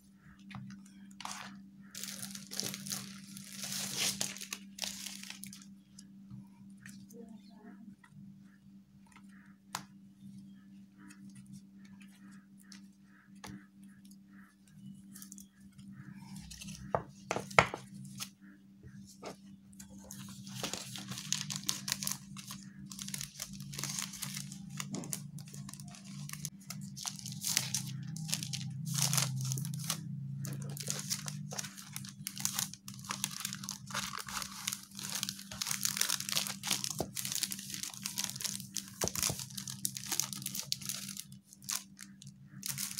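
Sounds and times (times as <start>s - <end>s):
plastic bag crinkling: 1.2s - 5.7s, 20.1s - 42.9s
paper cards handling: 20.0s - 42.9s.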